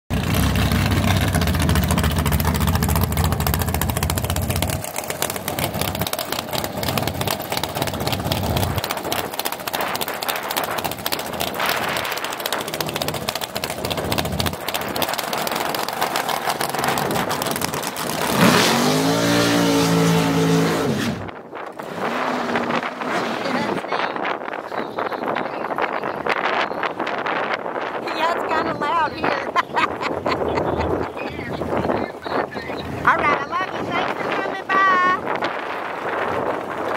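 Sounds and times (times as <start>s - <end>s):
dragster engine revving: 0.1s - 23.8s.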